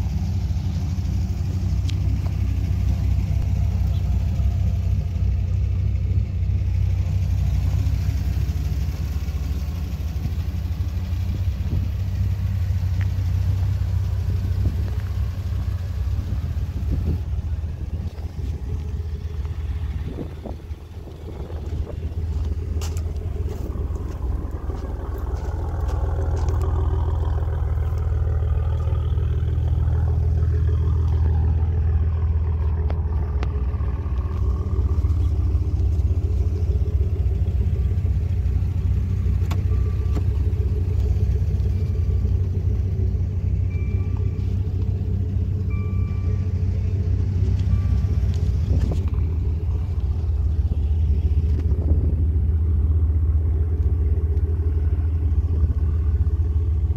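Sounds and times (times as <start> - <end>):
car engine idling: 0.0 - 56.9
faint chime: 43.7 - 48.5.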